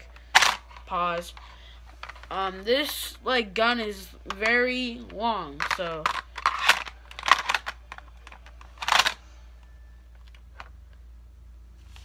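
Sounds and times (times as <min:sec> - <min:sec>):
pistol clicking in plastic holster: 0:05.6 - 0:09.2.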